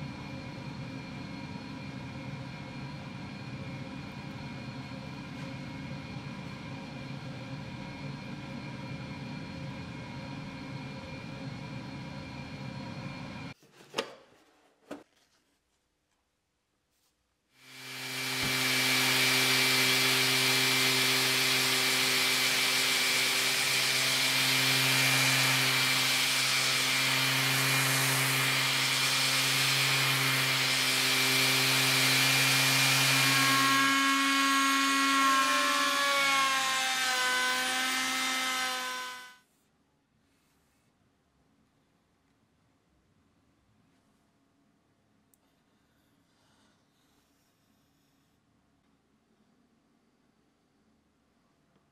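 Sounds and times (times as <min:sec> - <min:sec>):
orbital sander sanding wood: 0:17.6 - 0:39.4.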